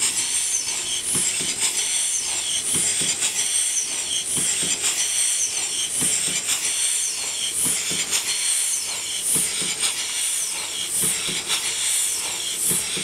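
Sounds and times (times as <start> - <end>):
model steam engine hissing and knocking: 0.0 - 13.0.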